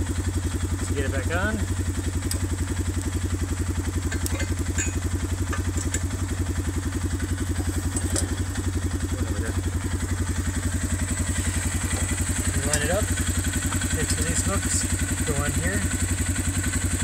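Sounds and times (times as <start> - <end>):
quad bike engine idling: 0.0 - 17.0
light metallic clinks: 4.1 - 6.2.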